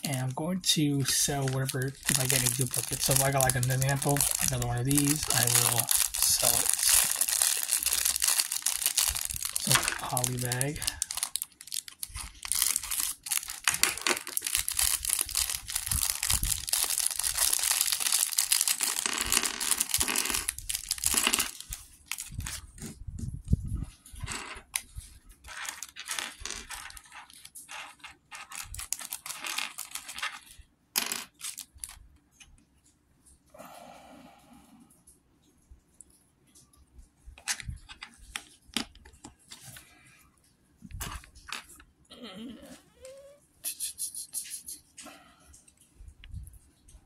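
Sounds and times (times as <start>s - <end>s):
plastic bag crinkling: 0.1s - 22.9s, 24.9s - 30.6s, 31.3s - 32.0s.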